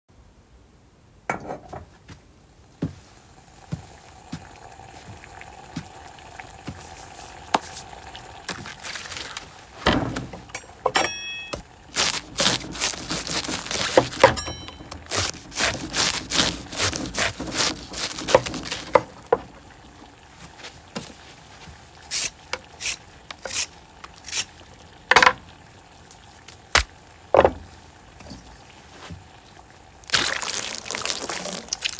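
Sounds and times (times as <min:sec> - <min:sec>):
faint steady hum: 0:00.1 - 0:31.9
clinks: 0:10.4 - 0:11.6, 0:14.2 - 0:15.0
knife cutting cabbage: 0:11.9 - 0:19.1, 0:22.1 - 0:24.5.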